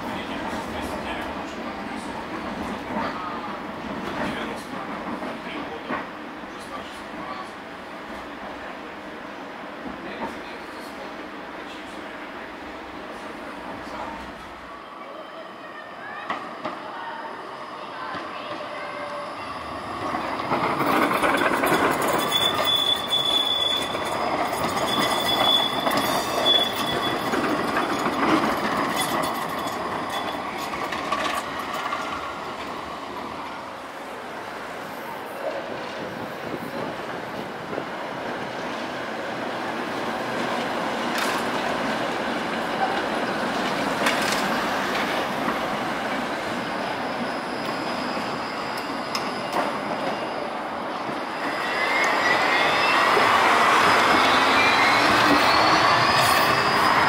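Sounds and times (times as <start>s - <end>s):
trams rolling on tracks: 0.0s - 57.0s
high-pitched wheel squeals: 18.6s - 28.1s, 46.5s - 57.0s
sharp clicks from rails: 40.4s - 41.9s, 42.5s - 45.7s.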